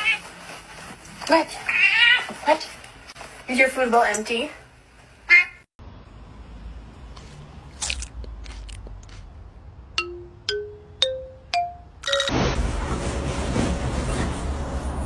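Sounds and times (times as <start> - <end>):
comic rising plucked notes: 10.0 - 12.6.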